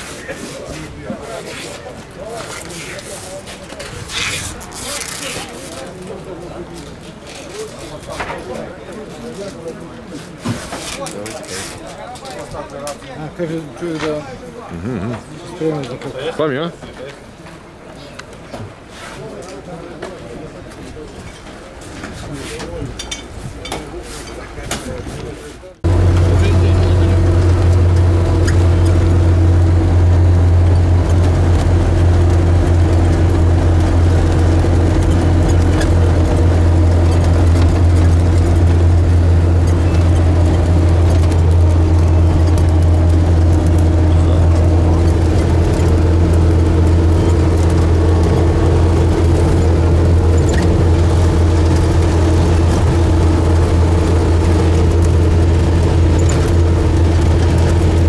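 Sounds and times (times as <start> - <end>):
vehicle engine droning: 25.8 - 58.0.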